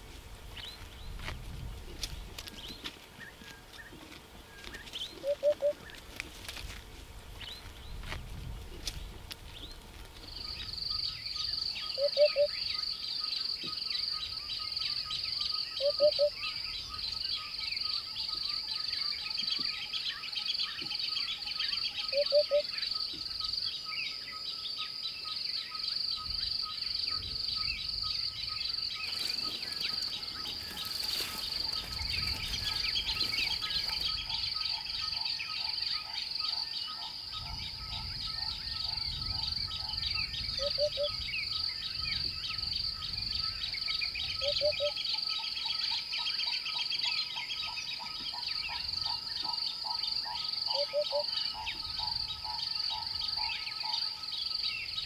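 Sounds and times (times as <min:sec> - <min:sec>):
hoopoe calling: 0:00.0 - 0:06.8, 0:08.7 - 0:23.5, 0:27.1 - 0:55.0
insects chirping: 0:00.0 - 0:55.0.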